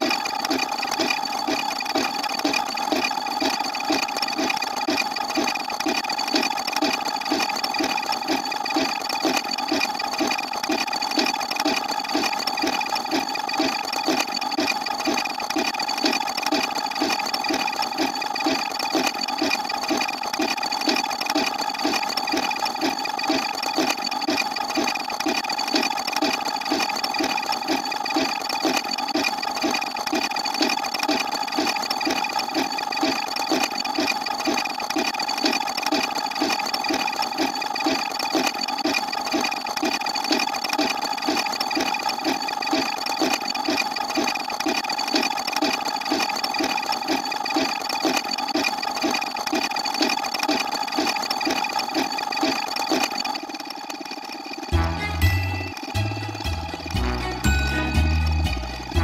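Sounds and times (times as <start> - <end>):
held tones: 54.7 - 59.0.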